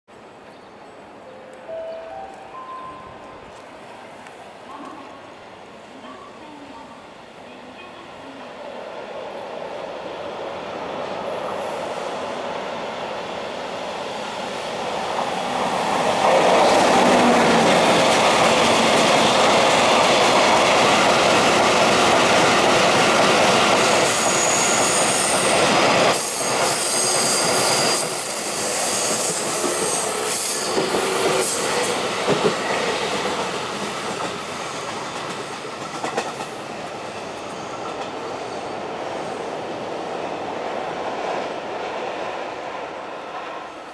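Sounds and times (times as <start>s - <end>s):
train wheels running over rails: 14.0s - 39.2s
shrill wheel squeal: 23.9s - 25.6s, 26.2s - 31.7s.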